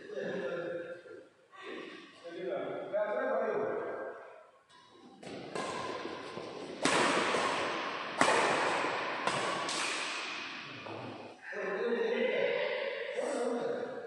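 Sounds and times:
rackets hitting shuttlecock: 5.2 - 11.3.

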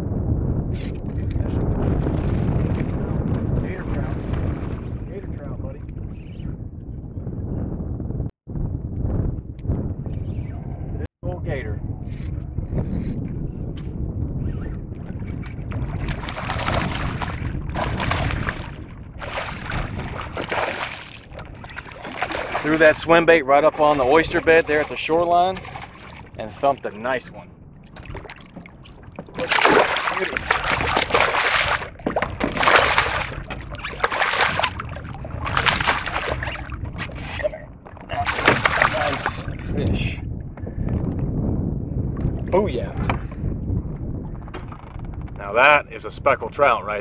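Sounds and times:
wind rumbling on microphone: 0.0 - 47.0
water washing against boat hull: 0.8 - 5.6, 15.0 - 39.6
fish thrashing and splashing: 15.8 - 23.0, 23.6 - 26.4, 27.9 - 39.3.

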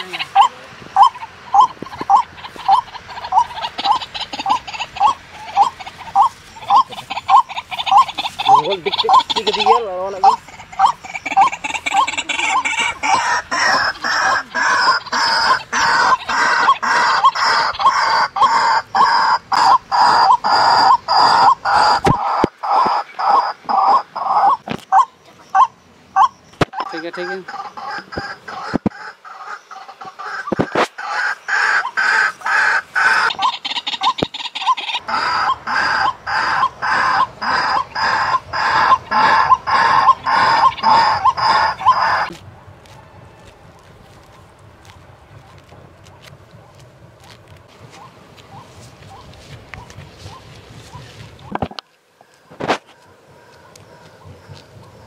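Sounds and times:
bird croaking harshly: 0.0 - 42.4.

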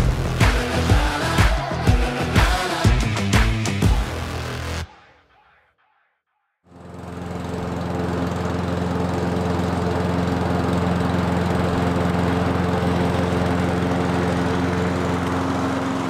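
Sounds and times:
lawn mower engine running: 6.7 - 16.0.

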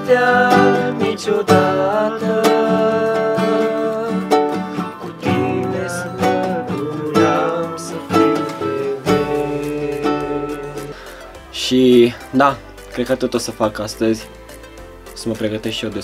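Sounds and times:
person singing: 0.0 - 11.5
acoustic guitar and ukulele strumming: 0.0 - 16.0.

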